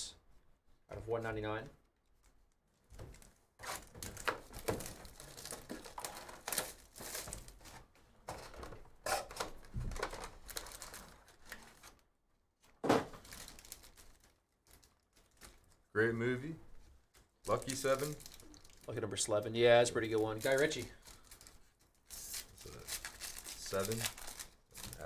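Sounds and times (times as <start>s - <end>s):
packs tearing: 3.1s - 7.6s, 9.1s - 11.9s, 17.5s - 18.9s, 20.0s - 25.0s
foil packs crinkling: 3.1s - 7.8s, 8.4s - 12.0s, 13.1s - 15.9s, 17.2s - 25.0s.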